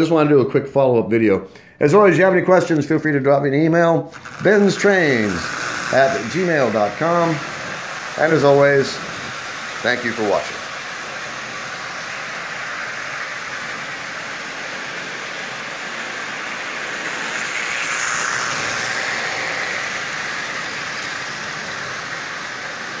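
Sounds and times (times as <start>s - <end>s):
toy trains clattering on metal track: 4.1s - 15.2s, 16.2s - 22.9s.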